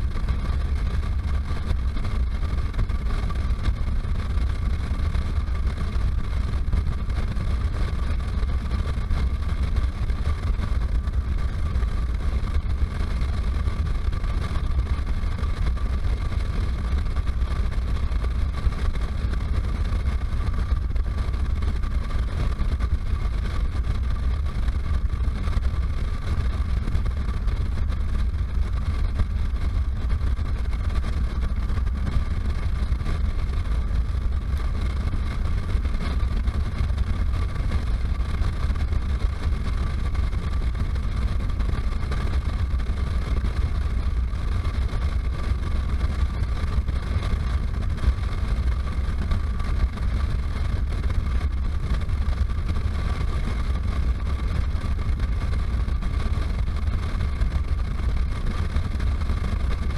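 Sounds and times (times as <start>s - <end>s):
motorcycle engine drone: 0.0s - 59.9s
wind rushing over camera: 0.0s - 59.9s.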